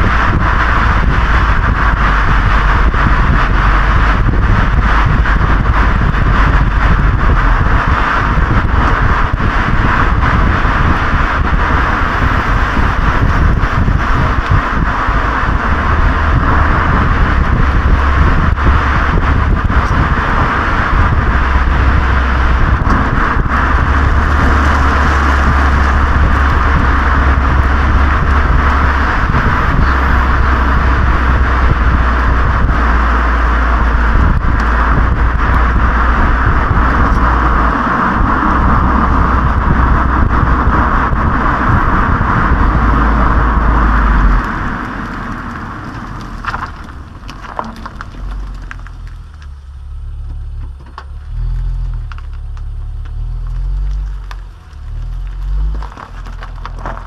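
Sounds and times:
car exhaust drone: 0.0 - 57.0
road noise: 0.0 - 57.0
wind noise on microphone: 0.0 - 57.0.

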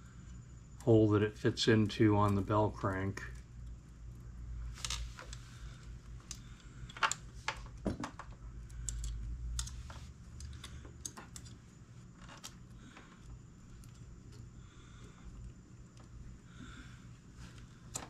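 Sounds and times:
small metallic clicks and taps: 6.2 - 11.6.

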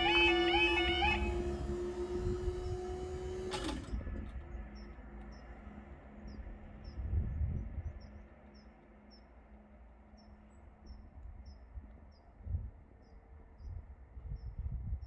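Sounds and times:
wind rumbling on microphone: 1.2 - 8.4, 10.8 - 15.0.

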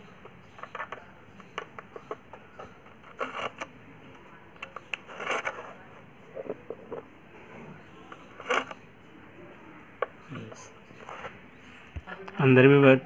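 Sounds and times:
small tool scraping on tray: 5.0 - 8.8.

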